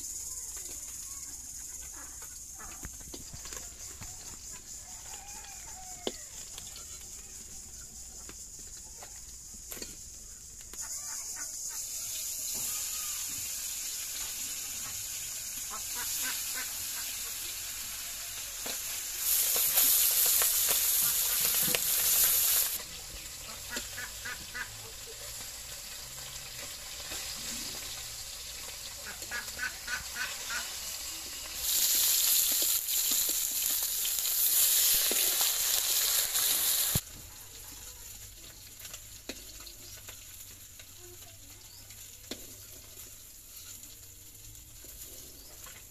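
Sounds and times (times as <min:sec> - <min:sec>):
fish frying in hot oil: 0:11.3 - 0:45.9.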